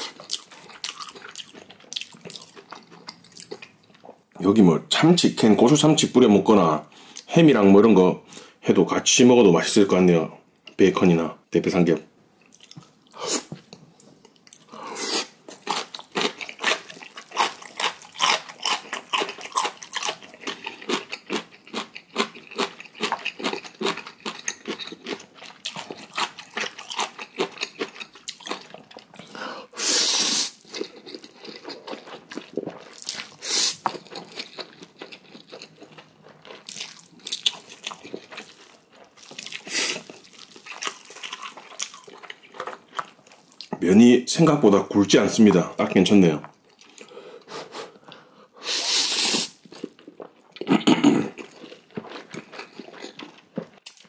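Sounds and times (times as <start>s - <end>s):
wet chewing and crunching: 0.0s - 4.3s, 15.5s - 29.4s, 30.5s - 43.7s, 49.6s - 54.0s
loud noodle slurps: 29.8s - 30.6s, 48.6s - 49.6s.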